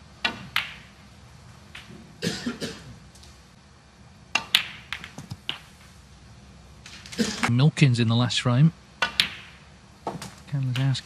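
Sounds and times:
snooker balls clicking: 0:00.2 - 0:01.0, 0:01.7 - 0:02.2, 0:04.3 - 0:06.0, 0:09.0 - 0:11.0.

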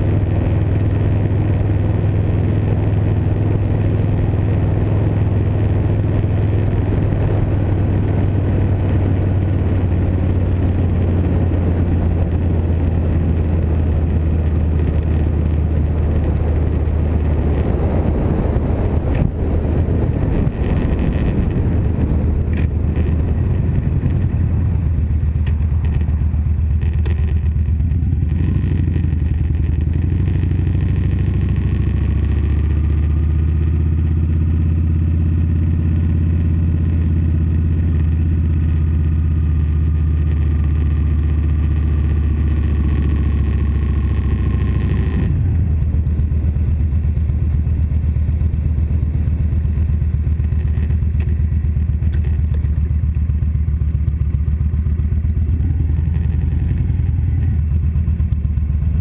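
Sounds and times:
wind noise on microphone: 0:00.0 - 0:32.4
motorcycle engine running: 0:00.0 - 0:59.0.

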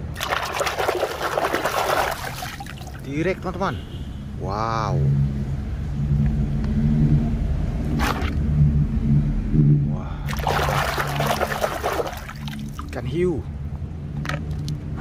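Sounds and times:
toy splashing in water: 0:00.0 - 0:03.1, 0:10.3 - 0:13.0.

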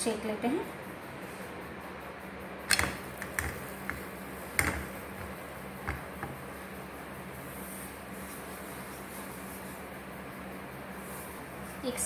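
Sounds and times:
steady low hum: 0:00.0 - 0:12.0
clicks and knocks on griddle: 0:02.7 - 0:06.4.

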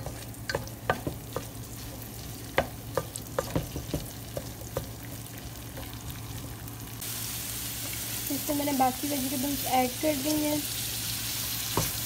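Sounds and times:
spatula knocking against pan: 0:00.0 - 0:01.6, 0:02.5 - 0:05.0
potatoes sizzling in oil: 0:00.0 - 0:12.0.

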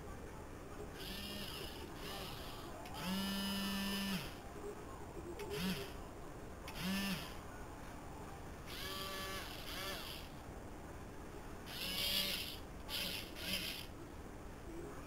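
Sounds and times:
toy robot arm motors whirring: 0:00.9 - 0:04.4, 0:05.4 - 0:06.0, 0:06.7 - 0:07.4, 0:08.7 - 0:10.4, 0:11.6 - 0:14.0.

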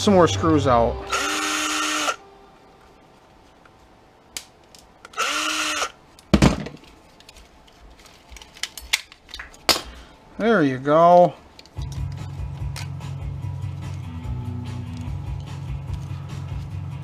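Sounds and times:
cordless drill whining: 0:01.1 - 0:02.2, 0:05.1 - 0:06.0.

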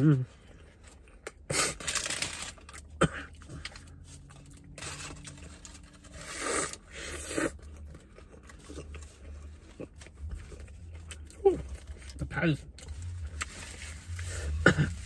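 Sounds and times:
paper wrapper crinkling: 0:01.5 - 0:02.9.

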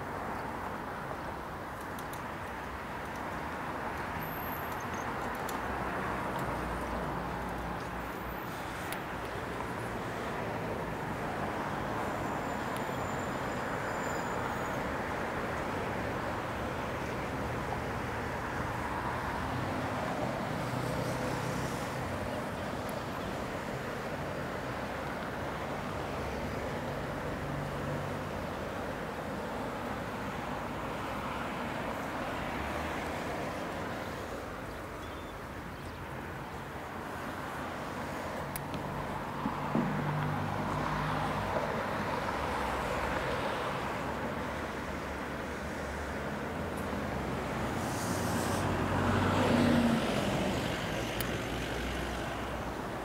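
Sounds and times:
city traffic noise: 0:00.0 - 0:53.0
faint clicks: 0:01.8 - 0:03.3.

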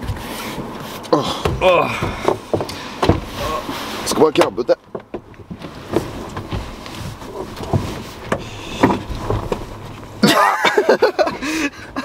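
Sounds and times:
people shifting in a car: 0:00.0 - 0:12.0
loud laughter: 0:10.2 - 0:12.0.

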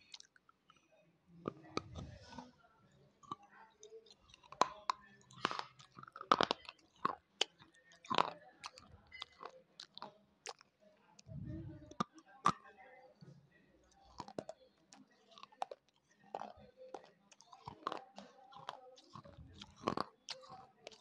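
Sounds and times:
crunchy biting and chewing: 0:03.2 - 0:12.6, 0:14.0 - 0:21.0.

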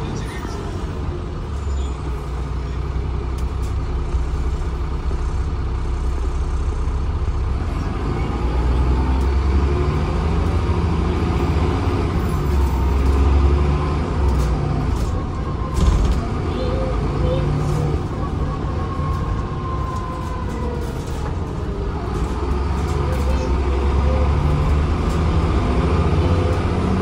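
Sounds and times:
bus engine and road rumble: 0:00.0 - 0:27.0.

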